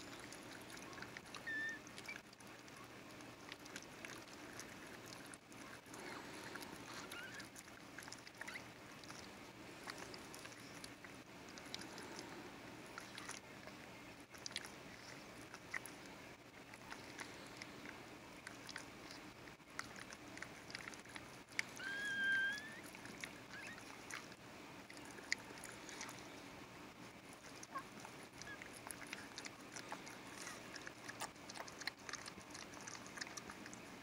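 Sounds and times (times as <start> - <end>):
dog wet clicking mouth sounds: 0.0 - 12.3, 12.9 - 26.4, 27.3 - 34.0
puppy squealing: 1.3 - 2.2, 6.9 - 7.6, 8.3 - 8.7, 21.6 - 24.3, 27.6 - 29.4.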